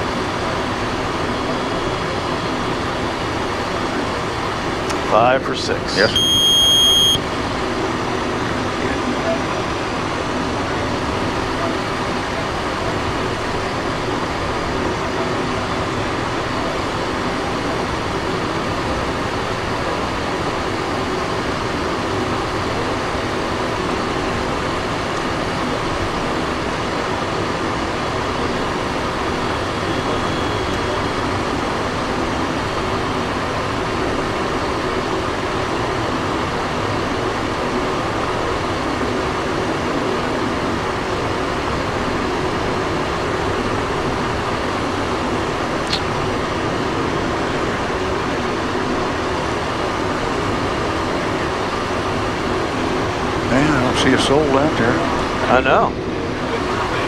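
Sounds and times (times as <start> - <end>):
jet cabin airflow and engine hum: 0.0 - 57.0
brief click: 45.9 - 46.1.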